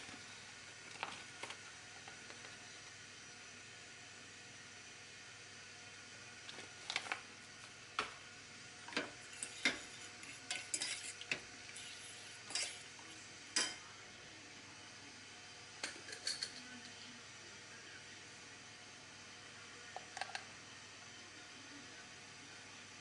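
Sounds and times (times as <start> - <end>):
cutlery clinking against saucepan: 10.5 - 11.3, 13.6 - 13.8.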